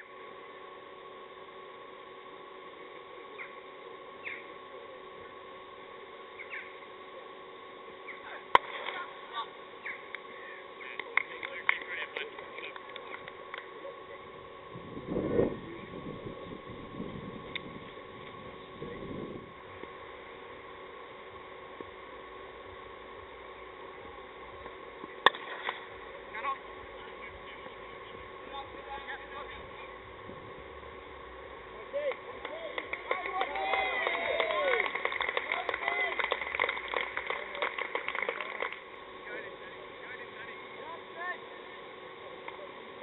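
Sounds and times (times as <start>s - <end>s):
faint hum: 0.0s - 43.0s
birds chirping: 3.3s - 4.6s, 6.3s - 6.8s.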